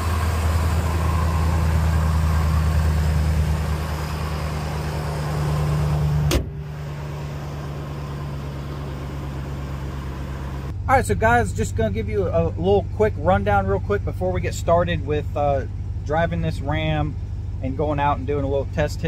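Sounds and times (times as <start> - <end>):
truck engine idling: 0.0 - 19.0
hood slammed shut: 5.8 - 7.0.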